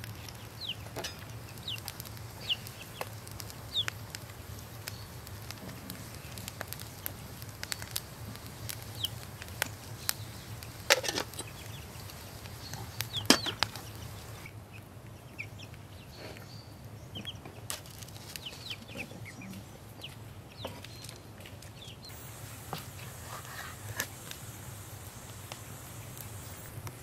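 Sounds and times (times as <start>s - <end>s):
fire popping: 0.0s - 15.1s, 16.8s - 27.0s
wood fire crackling: 0.0s - 15.8s, 16.8s - 27.0s
chickens clucking: 8.3s - 16.4s, 18.4s - 20.9s.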